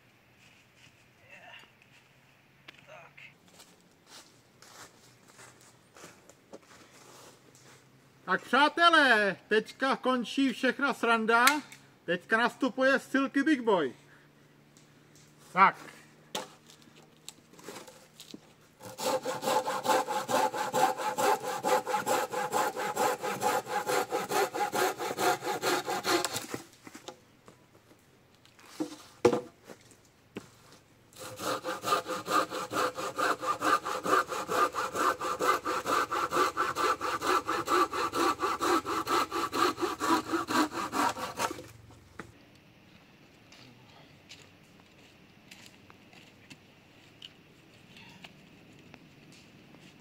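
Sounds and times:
pruning saw cutting wood: 18.8 - 26.6, 31.1 - 41.8.

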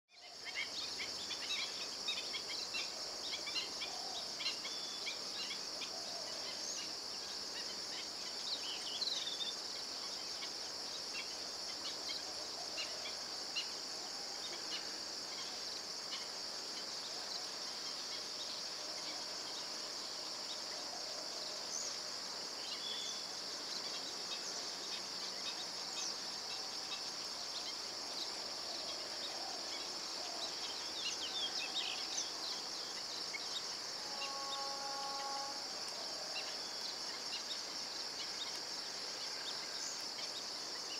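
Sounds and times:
high-pitched insect chorus: 0.1 - 40.9.

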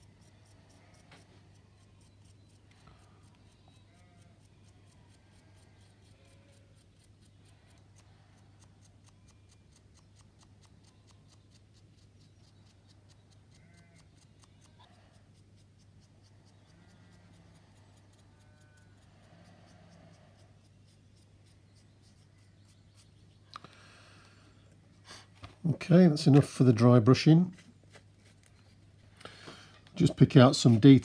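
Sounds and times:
faint regular ticking: 0.0 - 25.0
paintbrush scratching plastic: 20.4 - 23.5, 26.1 - 29.2, 30.0 - 31.0.

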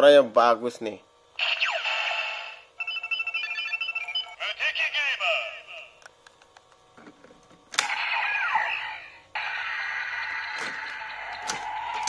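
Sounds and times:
toy belt electronic standby loop: 2.4 - 4.6.

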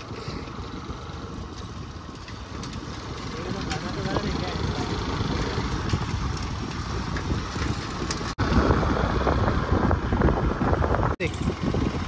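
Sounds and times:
road noise: 0.0 - 12.0
wind rumble on microphone: 3.6 - 12.0.

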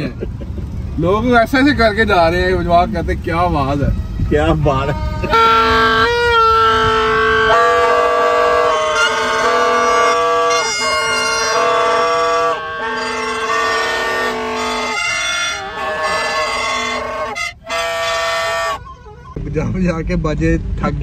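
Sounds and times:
plastic toy trumpets blowing: 4.9 - 19.4.

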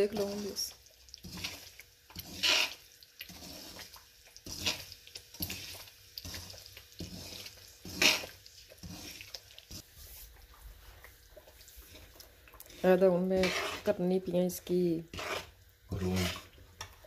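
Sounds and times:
soft frying hiss: 0.0 - 17.0
metal spatula scraping a pan: 1.2 - 9.8, 12.7 - 14.2, 15.0 - 16.6.

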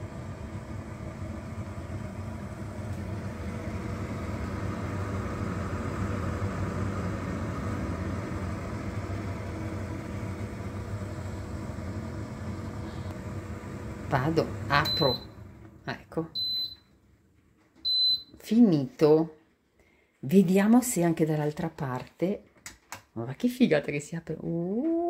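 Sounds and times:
air fryer fan whirring: 0.0 - 16.8.

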